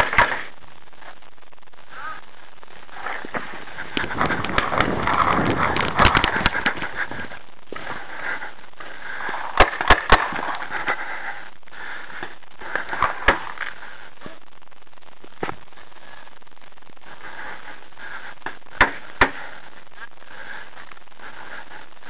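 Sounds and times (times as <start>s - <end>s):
rustling noise: 0.0s - 22.0s.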